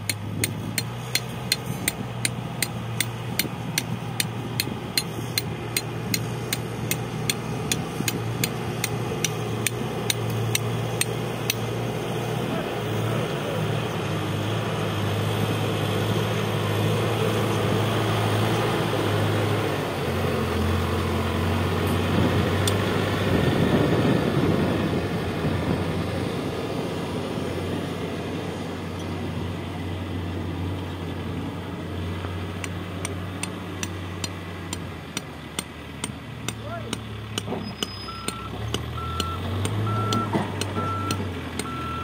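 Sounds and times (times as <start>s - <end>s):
diesel engine running: 0.0s - 42.0s
reversing alarm pulses: 37.9s - 42.0s.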